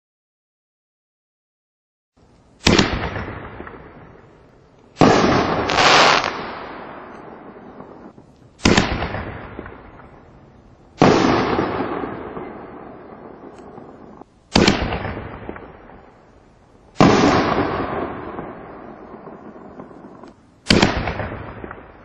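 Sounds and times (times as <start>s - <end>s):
firework launch bang: 2.6s - 4.2s, 5.0s - 10.1s, 11.0s - 16.0s, 17.0s - 22.0s
firework shell burst: 5.0s - 9.8s.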